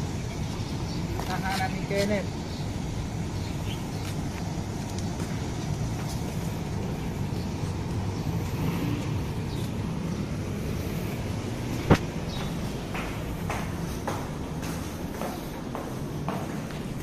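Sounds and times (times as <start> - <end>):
faint footsteps: 3.8 - 17.0.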